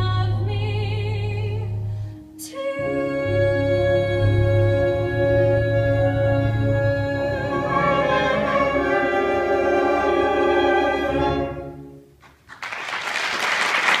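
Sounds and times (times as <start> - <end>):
orchestral strings holding chord: 2.7 - 12.1
audience applause: 12.5 - 14.0.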